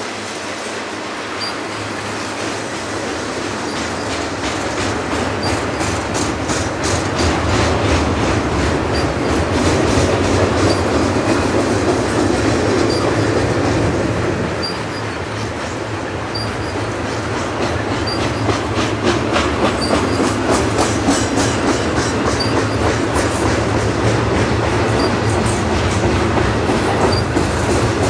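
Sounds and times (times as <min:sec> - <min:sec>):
freight train wheels rumbling: 0:00.0 - 0:28.0
train wheels clicking: 0:00.0 - 0:28.0.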